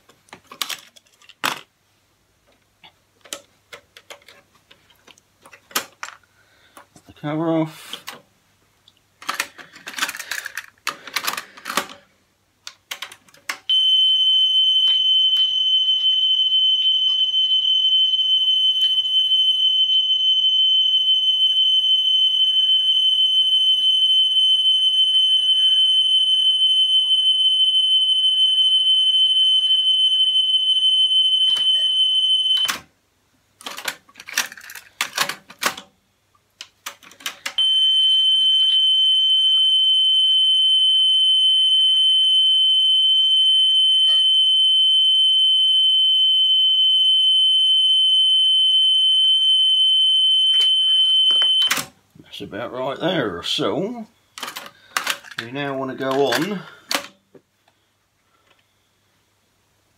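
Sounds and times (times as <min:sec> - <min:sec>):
high test tone: 0:13.7 - 0:32.7.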